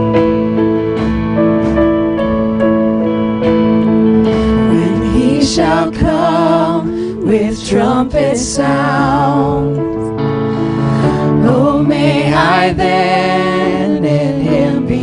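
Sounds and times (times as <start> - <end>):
electric guitar: 0.0 - 8.2
held chords: 0.0 - 15.0
person singing with vibrato: 4.3 - 10.0, 10.9 - 15.0.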